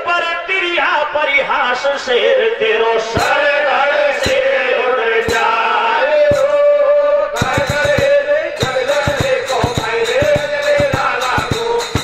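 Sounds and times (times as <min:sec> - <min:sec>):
rapid hand-drum strokes: 0:03.2 - 0:03.6, 0:04.2 - 0:06.7, 0:07.4 - 0:12.0.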